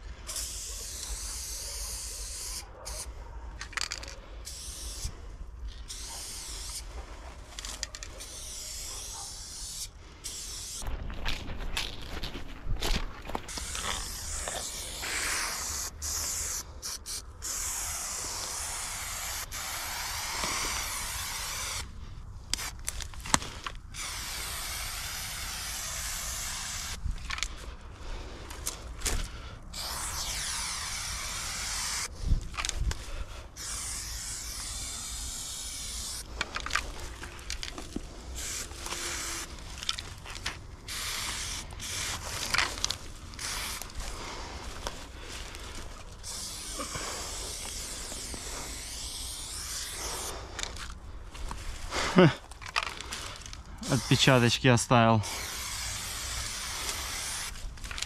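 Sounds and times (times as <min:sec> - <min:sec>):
spray paint can hissing: 0:00.2 - 0:10.9, 0:13.5 - 0:21.9, 0:22.5 - 0:27.6, 0:28.6 - 0:33.0, 0:33.6 - 0:44.9, 0:45.5 - 0:51.0, 0:52.7 - 0:58.0.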